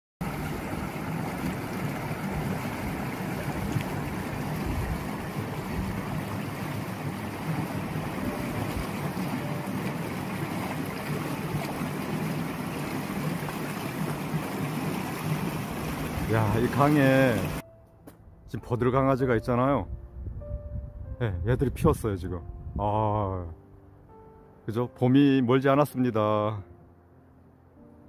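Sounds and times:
river water running over rocks: 0.2s - 17.6s.

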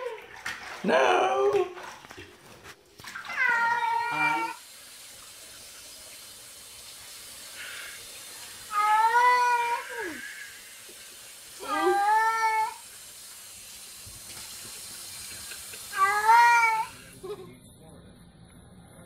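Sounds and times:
running water from sink sprayer: 2.6s - 17.3s
cat meowing: 3.2s - 4.6s, 16.0s - 17.0s.

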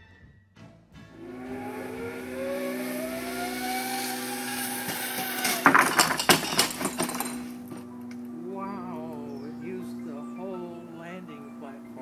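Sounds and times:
steady hum: 1.1s - 12.0s
zipline pulley whining on cable: 1.2s - 10.8s
clatter of knocks: 4.5s - 7.9s.

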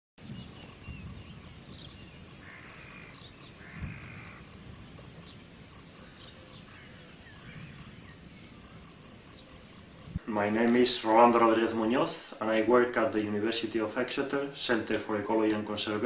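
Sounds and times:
cricket singing: 0.2s - 10.2s.

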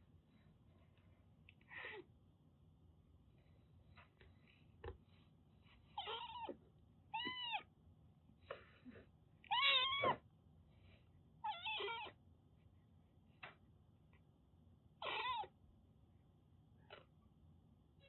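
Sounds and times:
kitten meowing: 6.0s - 6.6s, 7.2s - 7.7s, 9.5s - 10.2s, 11.4s - 12.2s, 15.0s - 15.5s.

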